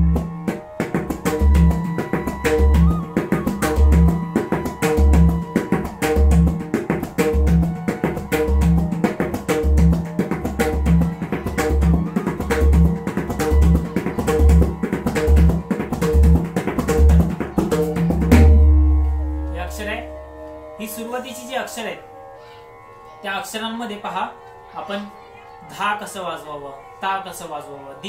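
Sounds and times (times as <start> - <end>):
barrel drum rhythm: 0.0 - 19.8.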